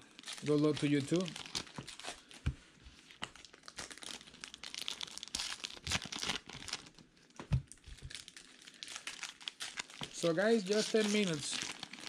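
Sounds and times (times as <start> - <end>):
plastic wrapper crinkling and tearing: 0.0 - 12.0
cards being handled: 10.0 - 11.5.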